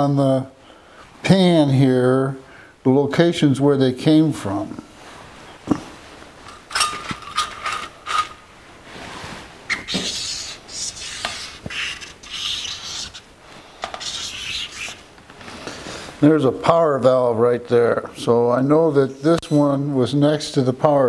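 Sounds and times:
small metal parts clicking: 6.5s - 8.4s
marker pen scratchy rubbing: 9.7s - 13.3s, 13.9s - 15.1s.

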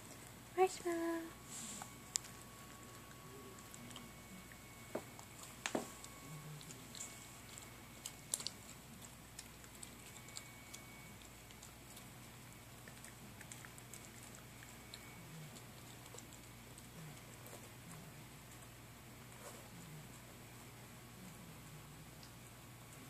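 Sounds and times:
puppy chewing dry kibble: 1.4s - 23.0s.

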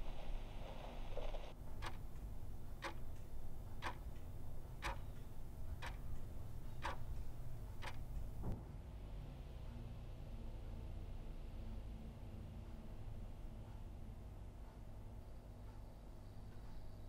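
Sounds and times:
wall clock ticking: 1.6s - 8.5s.

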